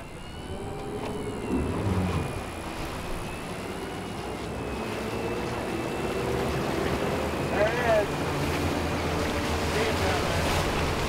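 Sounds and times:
low rumble: 0.0s - 4.7s
boat engines droning: 0.0s - 11.0s
water rushing along hull: 0.0s - 11.0s
wind: 0.0s - 11.0s.

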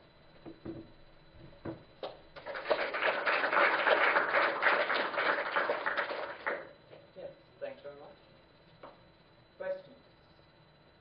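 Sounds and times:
audience clapping: 2.0s - 6.7s.

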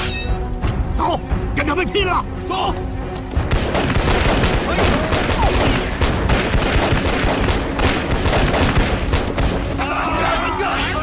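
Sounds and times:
rapid battle gunfire: 3.5s - 9.6s.

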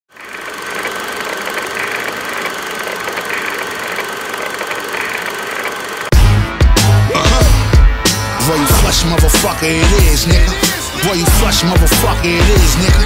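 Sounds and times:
mechanical running noise: 0.1s - 6.2s
loud music with heavy bass: 6.1s - 13.0s.

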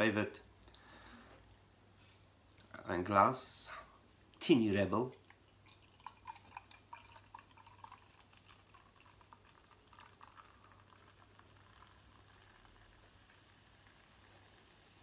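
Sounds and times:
beer pouring into glass: 5.1s - 15.0s.

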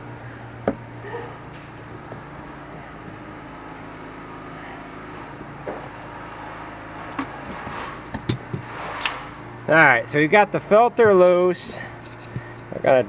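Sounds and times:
mechanical hum: 0.0s - 13.0s
metallic clicks and knocks: 7.1s - 9.2s.

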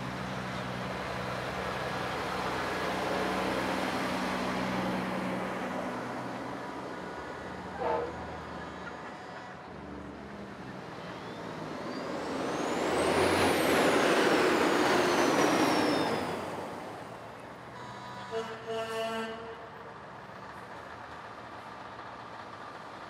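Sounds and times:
vehicle passing by: 0.0s - 8.7s, 9.8s - 17.4s
truck air horn blasts: 7.7s - 8.3s, 17.7s - 19.8s.

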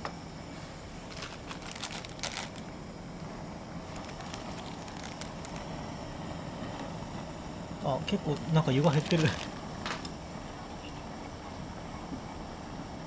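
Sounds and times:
gas stove burner hissing: 0.0s - 13.0s
plastic packaging crinkling: 1.0s - 2.6s, 3.8s - 5.7s, 8.8s - 10.1s.

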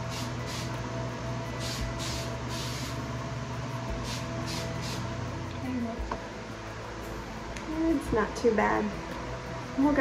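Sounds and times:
hairspray hissing spritzes: 0.0s - 0.8s, 1.6s - 3.0s, 4.0s - 5.1s
steady low hum: 0.0s - 10.0s.

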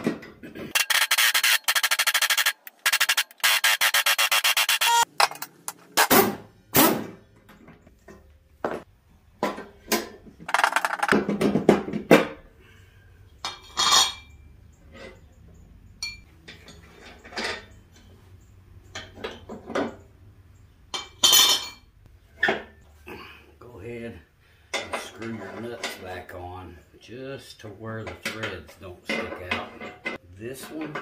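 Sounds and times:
metal tools clanking: 13.4s - 15.3s, 16.0s - 20.0s, 20.9s - 22.8s, 24.7s - 26.4s, 28.0s - 31.0s.

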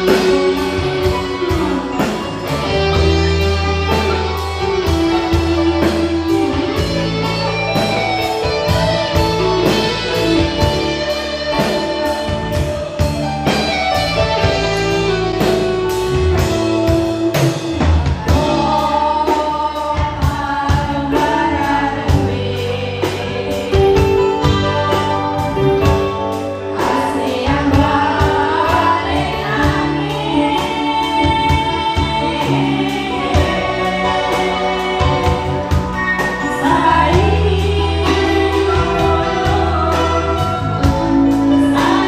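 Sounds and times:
electric guitar: 0.0s - 42.0s
steady drum beat: 0.0s - 42.0s
person singing: 18.1s - 42.0s.

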